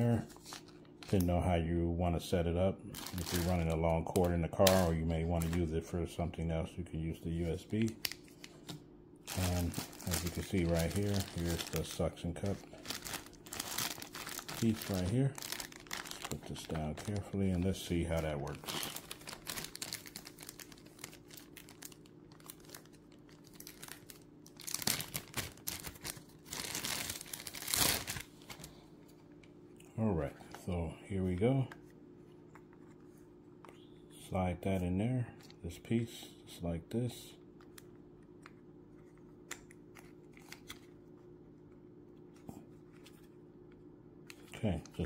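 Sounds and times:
faint steady hum: 0:00.0 - 0:45.0
plastic packaging crinkling: 0:02.9 - 0:05.7, 0:07.4 - 0:28.8.

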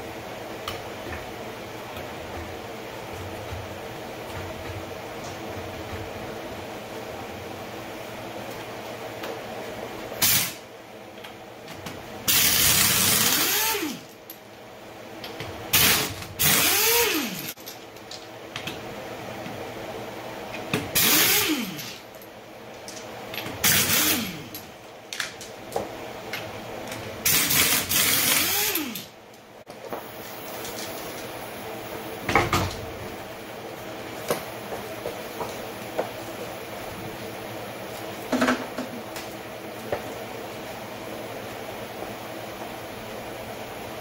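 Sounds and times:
air motor whine: 0:00.0 - 0:14.2, 0:14.8 - 0:17.6, 0:18.5 - 0:22.6, 0:23.3 - 0:24.9, 0:25.8 - 0:44.0
pneumatic impact wrench hammering: 0:10.2 - 0:10.6, 0:12.3 - 0:14.0, 0:15.7 - 0:17.5, 0:20.9 - 0:22.0, 0:23.6 - 0:24.5, 0:27.2 - 0:29.1.

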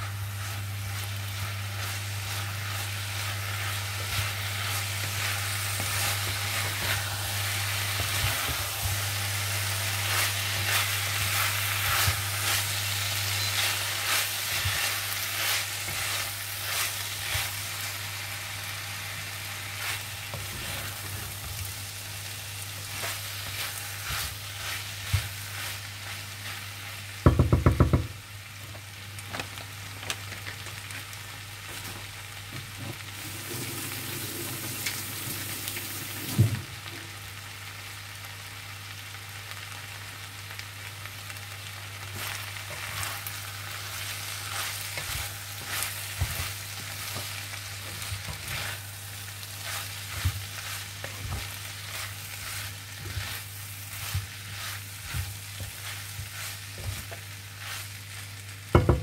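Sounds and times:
noodles sizzling in a frying pan: 0:00.0 - 0:59.0
loud knock on pan: 0:27.2 - 0:28.1, 0:58.8 - 0:59.0
spatula tapping and scraping pan: 0:27.2 - 0:28.2, 0:58.7 - 0:59.0.

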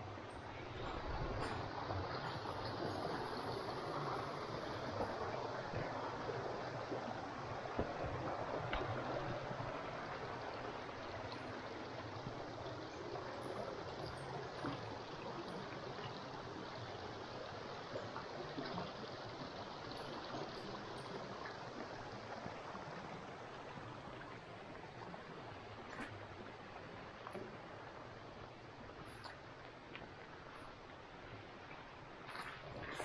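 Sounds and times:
forest stream babbling: 0:00.0 - 0:33.0
faint light ticks: 0:08.7 - 0:09.0.

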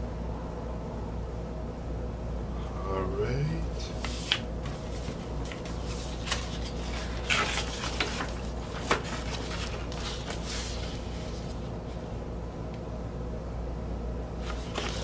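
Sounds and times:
rustling paper: 0:03.7 - 0:12.0, 0:14.4 - 0:15.0.

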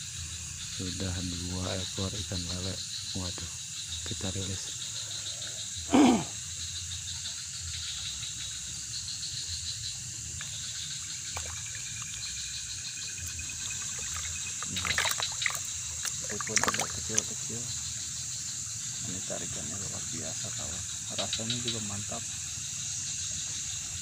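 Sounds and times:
night insects chirring: 0:00.0 - 0:24.0
fish thrashing in water: 0:11.1 - 0:12.5, 0:13.1 - 0:17.5.

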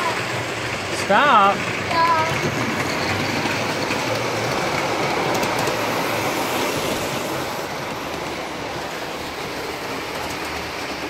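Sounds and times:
model train rolling on rails: 0:00.0 - 0:11.0.

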